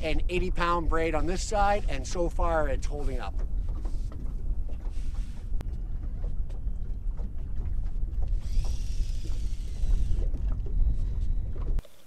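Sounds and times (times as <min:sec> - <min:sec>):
wind rumble on microphone: 0:00.0 - 0:12.0
fishing line running off reel: 0:08.3 - 0:10.5.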